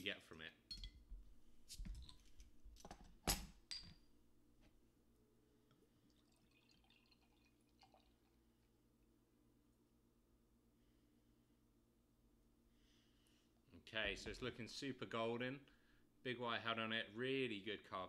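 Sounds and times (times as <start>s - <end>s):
beer pouring into a glass: 5.7s - 8.8s.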